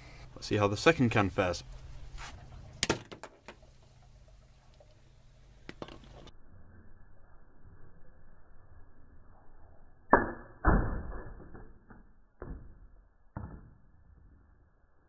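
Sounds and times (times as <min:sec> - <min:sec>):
objects knocked over: 0:02.8 - 0:03.6.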